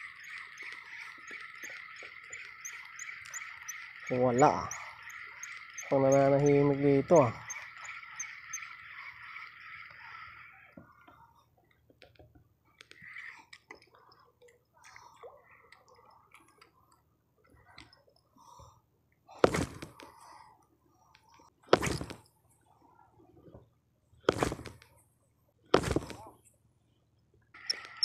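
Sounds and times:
fishing reel clicks and rustles: 0:00.0 - 0:11.1
faint chirring call: 0:00.0 - 0:11.4, 0:27.6 - 0:28.0.

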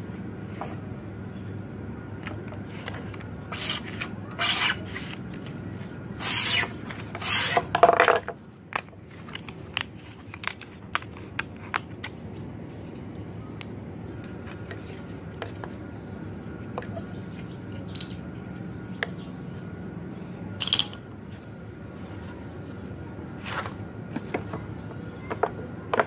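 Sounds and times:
cutter scraping metal sheet: 0:03.5 - 0:05.2, 0:06.2 - 0:07.7.

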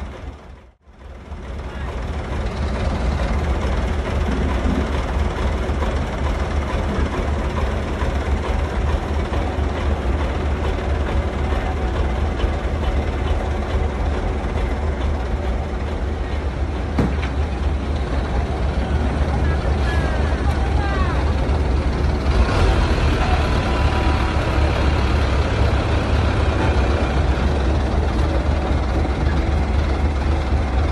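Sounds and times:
diesel engine rumbling: 0:00.0 - 0:30.9
short knock: 0:17.0 - 0:17.4.

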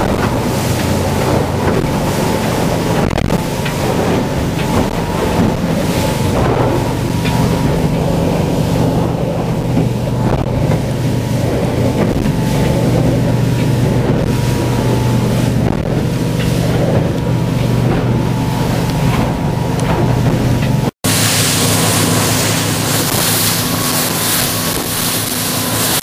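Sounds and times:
motorboat engines droning: 0:00.0 - 0:26.0
rush of boat wake: 0:00.0 - 0:26.0
wind buffeting microphone: 0:00.0 - 0:26.0.

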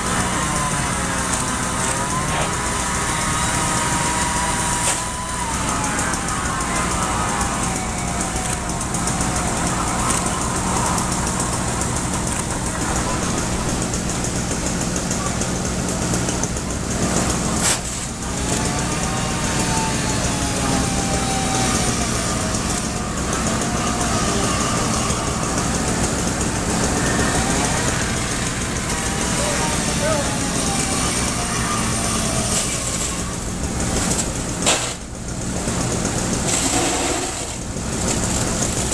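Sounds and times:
fire truck engines humming: 0:00.0 - 0:38.9
hiss: 0:36.3 - 0:37.6.

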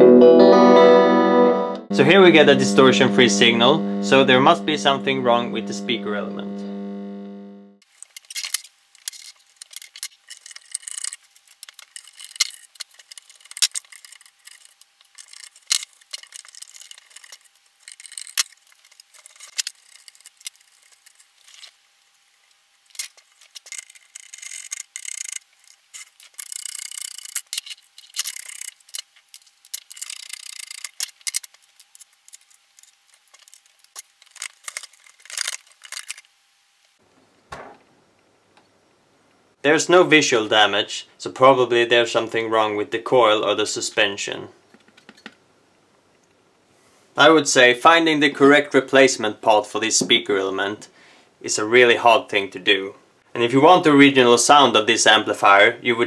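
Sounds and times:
faint high tone: 0:00.0 - 0:07.6
small metal clicks and rattles: 0:07.9 - 0:21.7, 0:22.9 - 0:36.3, 0:44.7 - 0:45.4
parts scraping and rubbing: 0:07.9 - 0:21.8, 0:22.4 - 0:36.3.

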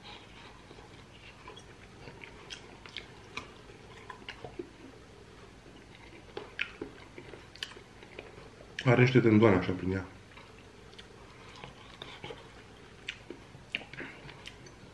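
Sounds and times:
person chewing meat: 0:00.0 - 0:09.0, 0:10.2 - 0:14.9.

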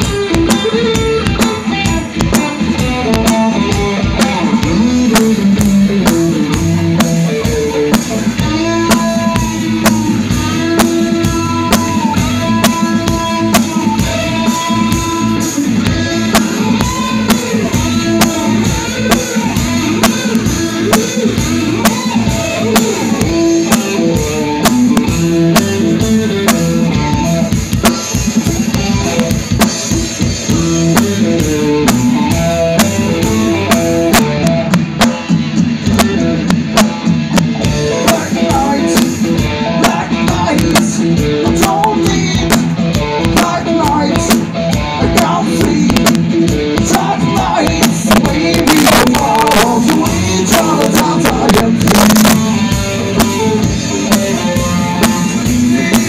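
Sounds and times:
bass guitar: 0:00.0 - 0:56.0
drum kit beat: 0:00.0 - 0:56.0
electric guitar: 0:00.0 - 0:56.0.

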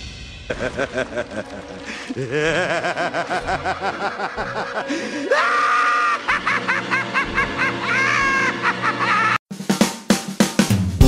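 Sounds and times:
music: 0:00.0 - 0:11.0
high-pitched cackling laughter: 0:00.5 - 0:09.4.

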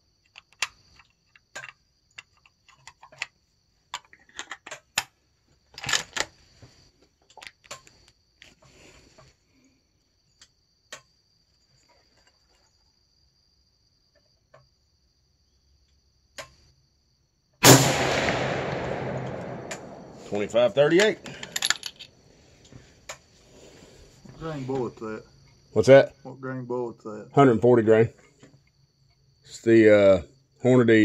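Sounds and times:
rifle shot: 0:17.6 - 0:21.5.

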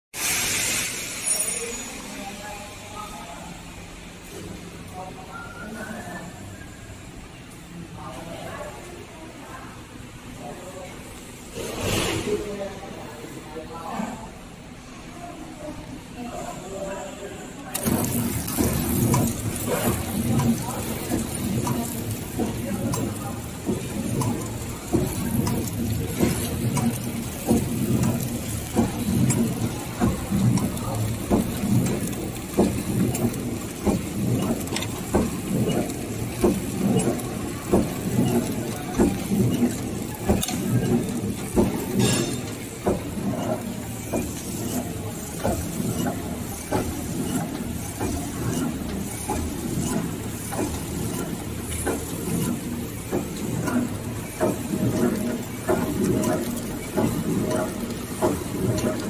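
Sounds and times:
packing machine running: 0:17.7 - 0:59.0
sharp machine knock: 0:17.7 - 0:59.0.

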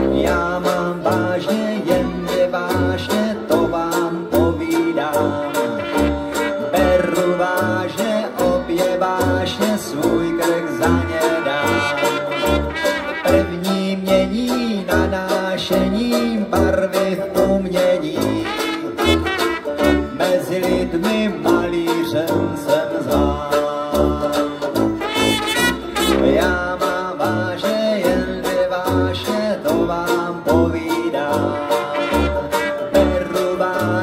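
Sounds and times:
strummed banjo: 0:00.0 - 0:34.0
tuba bass notes: 0:00.0 - 0:34.0
trumpet line: 0:05.2 - 0:08.3, 0:09.4 - 0:13.9, 0:18.3 - 0:20.4, 0:24.5 - 0:26.9, 0:31.4 - 0:33.5.

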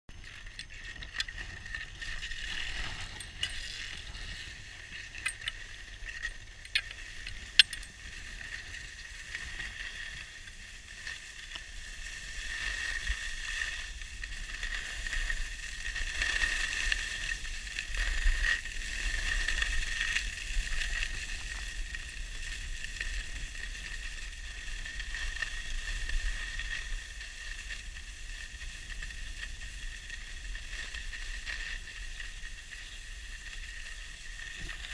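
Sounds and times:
skis scraping over snow: 0:00.1 - 0:34.9
wind rumble on microphone: 0:00.1 - 0:34.9.

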